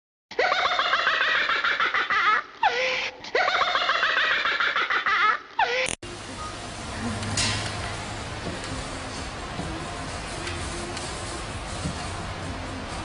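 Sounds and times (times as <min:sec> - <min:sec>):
laugh sound effect: 0:00.3 - 0:06.0.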